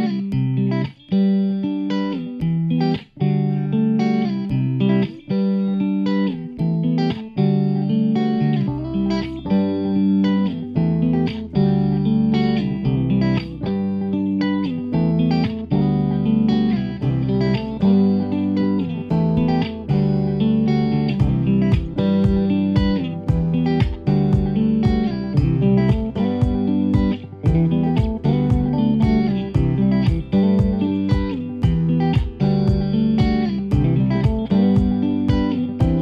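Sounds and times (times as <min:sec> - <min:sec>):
plucked instrumental music: 0:00.0 - 0:36.0
low bass part: 0:14.9 - 0:36.0.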